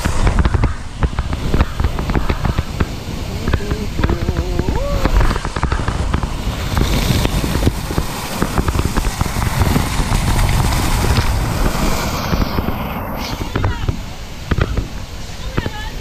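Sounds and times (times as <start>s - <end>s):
spray crackling on camera: 0.0s - 16.0s
water rushing and splashing: 0.0s - 16.0s
person crying out: 4.5s - 5.3s.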